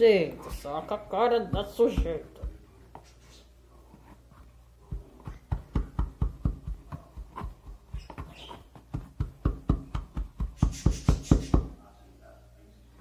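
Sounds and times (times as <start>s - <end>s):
pestle thudding in glass jar: 5.2s - 11.8s.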